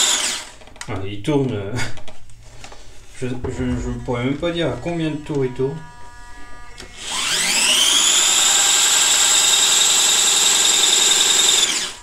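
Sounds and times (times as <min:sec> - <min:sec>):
small motors whining: 0:04.2 - 0:12.0.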